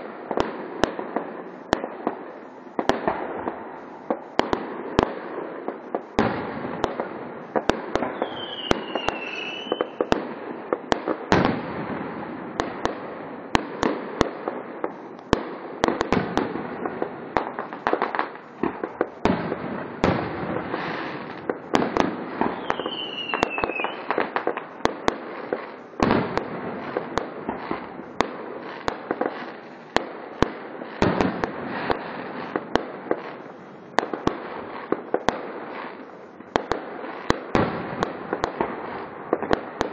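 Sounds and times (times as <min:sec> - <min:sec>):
falling firework whistle: 0:08.1 - 0:10.1, 0:22.4 - 0:24.2.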